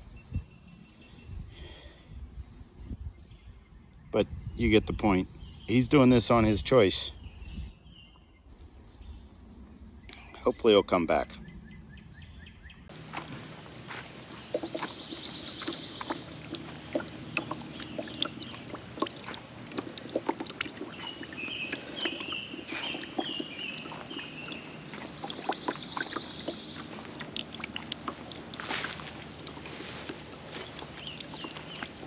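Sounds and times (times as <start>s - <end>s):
fountain water trickling: 12.9s - 32.0s.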